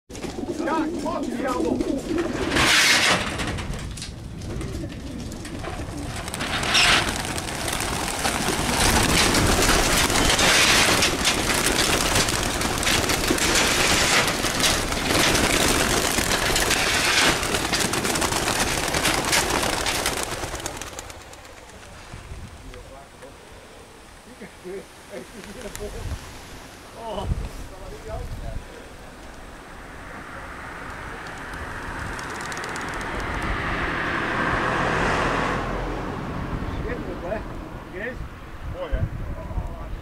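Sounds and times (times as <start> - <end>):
pigeon wings flapping: 0.1 - 22.6, 25.3 - 26.0, 30.8 - 33.7.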